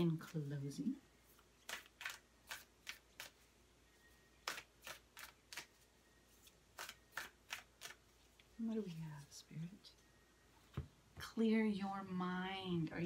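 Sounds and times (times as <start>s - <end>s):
cards shuffled by hand: 1.4s - 3.4s, 4.4s - 5.8s, 6.4s - 8.4s.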